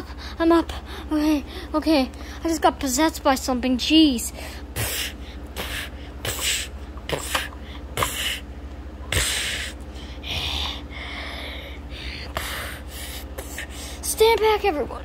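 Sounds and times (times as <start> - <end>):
steady low hum: 0.0 - 15.0
breathy hisses and huffs: 9.1 - 14.0.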